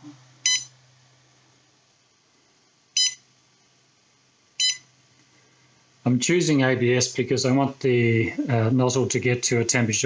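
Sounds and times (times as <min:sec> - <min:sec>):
short high beeps: 0:00.4 - 0:00.7, 0:03.0 - 0:03.2, 0:04.6 - 0:04.9.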